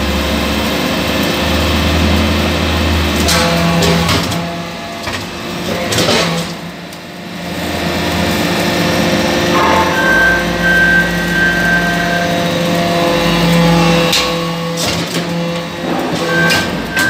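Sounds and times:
metal clanks: 9.6s - 11.1s.

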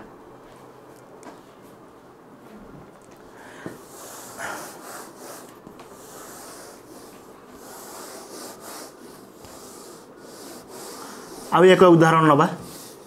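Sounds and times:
eraser scrubbing whiteboard: 3.8s - 13.0s.

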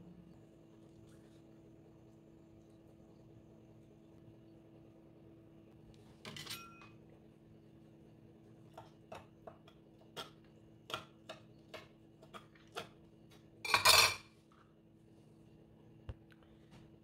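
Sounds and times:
knife chopping on plastic board: 8.7s - 13.0s.

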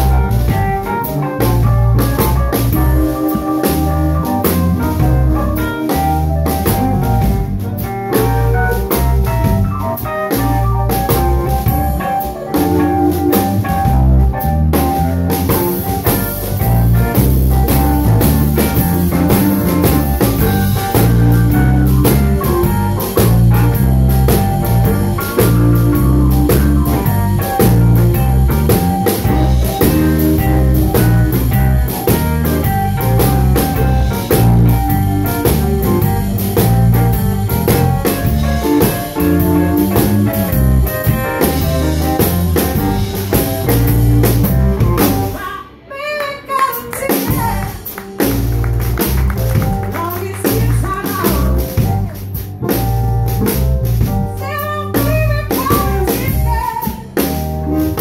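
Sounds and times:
organ: 0.0s - 45.4s
blues band playing: 0.0s - 58.0s.

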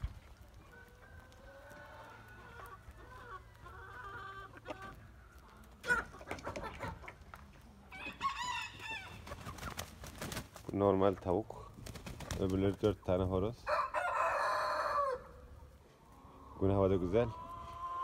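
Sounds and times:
chickens clucking: 0.0s - 18.0s
rooster crowing: 13.7s - 15.3s.

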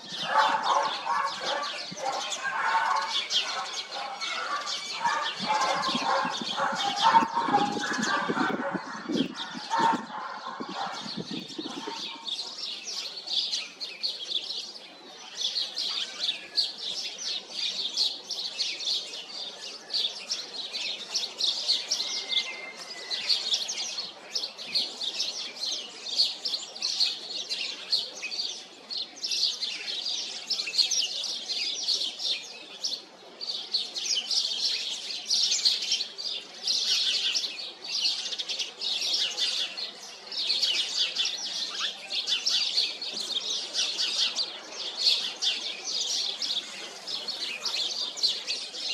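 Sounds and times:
birds chirping: 0.0s - 14.8s, 35.3s - 48.9s.

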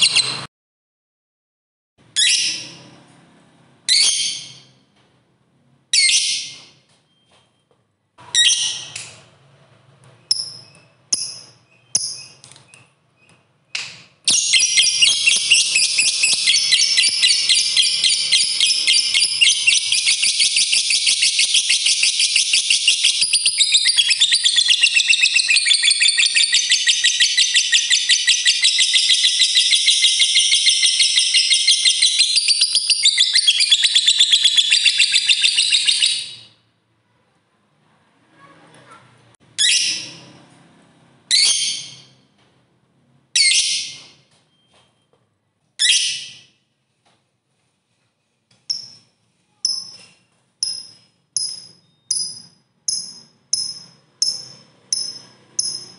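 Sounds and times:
bird chirping and chattering: 0.0s - 0.4s, 10.2s - 13.3s, 14.3s - 36.6s, 48.7s - 55.9s.

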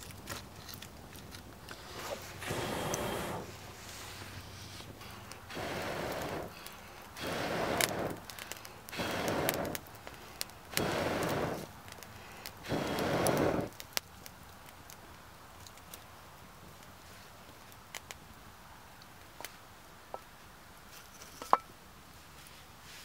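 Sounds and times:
fire crackling and popping: 0.0s - 20.3s
person blowing on coals: 1.6s - 13.8s.

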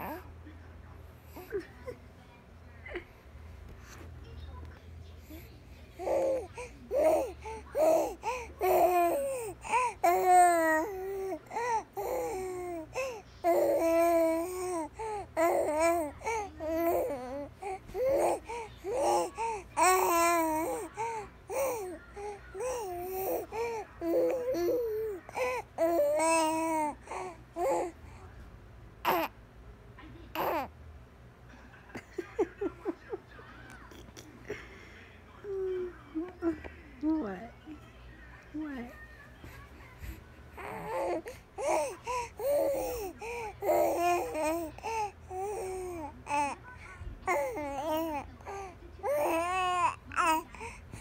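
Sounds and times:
baby babbling and cooing: 5.2s - 28.2s, 29.0s - 29.3s, 30.3s - 30.7s, 38.9s - 51.0s.

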